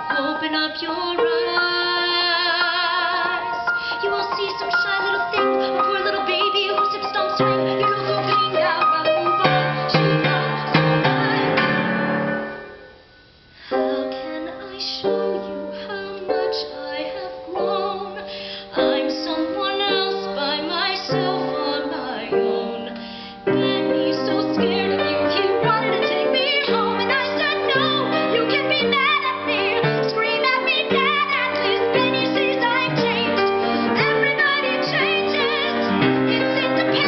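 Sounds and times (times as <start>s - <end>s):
woman singing: 0.0s - 12.3s, 13.7s - 37.0s
piano accompaniment: 0.0s - 37.0s.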